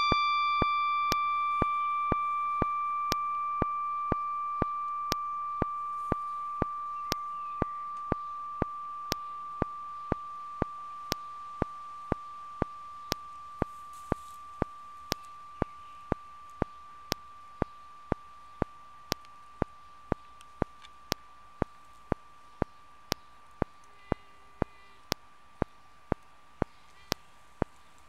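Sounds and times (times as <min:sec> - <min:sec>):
bell tone ringing: 0:00.0 - 0:15.8
clock-like ticking clicks: 0:00.0 - 0:27.8.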